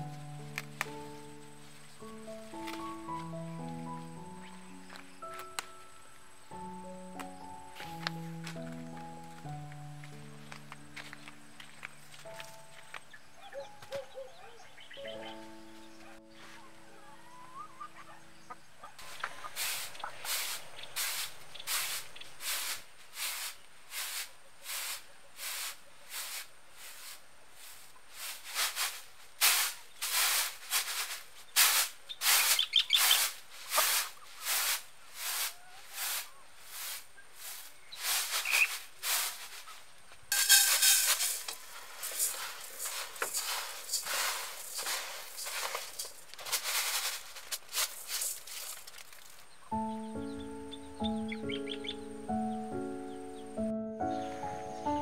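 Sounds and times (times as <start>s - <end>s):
rice swishing in a tray: 19.1s - 39.7s, 40.3s - 49.3s.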